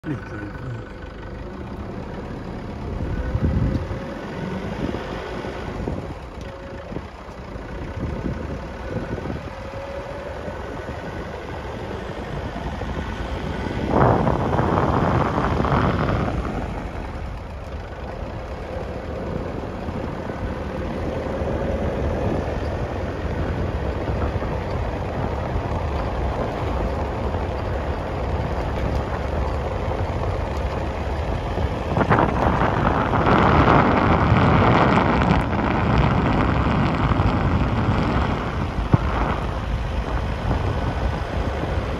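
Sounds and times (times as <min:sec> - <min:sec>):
engine and tyre rumble: 0:00.0 - 0:41.9
rush of noise: 0:31.7 - 0:41.9.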